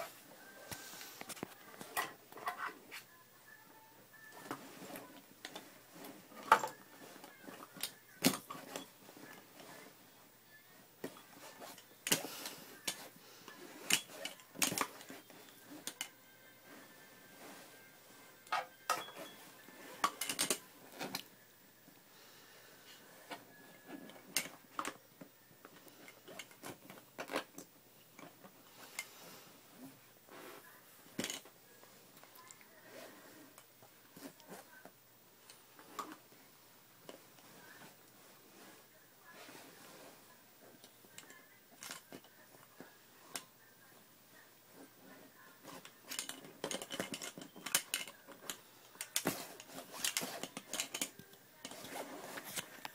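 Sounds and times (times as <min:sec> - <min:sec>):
plastic toys clicking and knocking: 0:04.4 - 0:08.9, 0:11.0 - 0:16.2, 0:19.8 - 0:21.3, 0:31.1 - 0:31.5, 0:40.8 - 0:42.3, 0:45.7 - 0:52.9.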